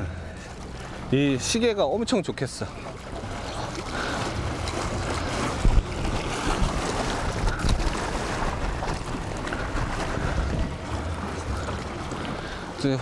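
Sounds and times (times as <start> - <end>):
water rushing and splashing: 0.0 - 13.0
wind buffeting microphone: 2.8 - 13.0.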